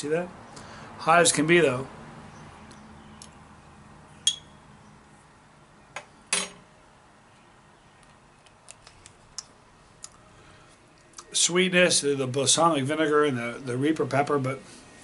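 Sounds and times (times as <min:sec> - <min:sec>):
metal spoon clinking down: 0:04.3 - 0:04.5.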